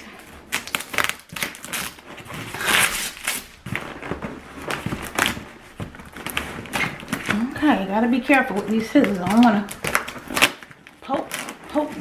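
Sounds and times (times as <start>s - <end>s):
scissors cutting tape and cardboard: 0.1s - 3.9s, 8.5s - 12.0s.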